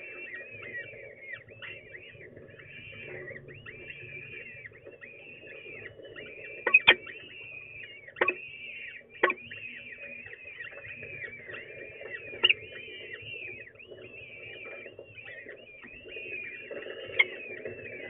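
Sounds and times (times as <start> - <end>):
chicks giving begging calls: 2.7 - 9.9.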